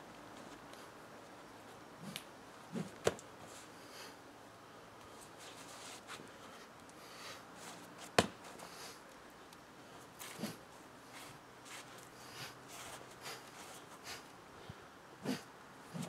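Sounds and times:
stick swishing through air: 2.0s - 3.2s.

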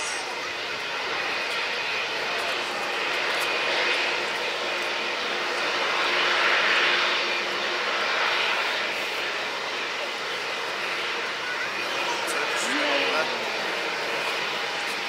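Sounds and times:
jet engines rushing with whine: 0.0s - 15.0s.

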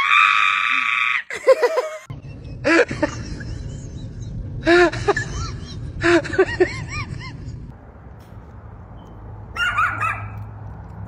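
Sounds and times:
low steady hum: 2.1s - 9.5s.

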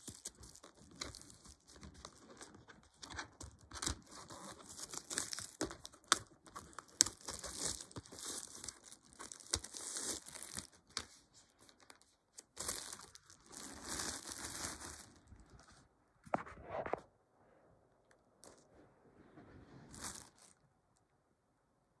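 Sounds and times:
plastic wrap crinkling and tearing: 0.0s - 15.8s, 19.9s - 20.6s.

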